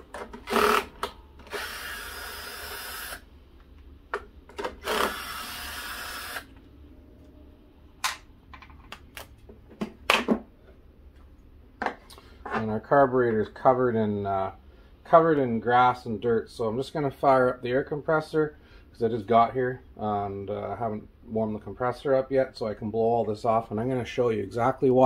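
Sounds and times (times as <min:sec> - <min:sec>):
power drill spinning out screws: 0:00.3 - 0:03.2, 0:04.6 - 0:06.6.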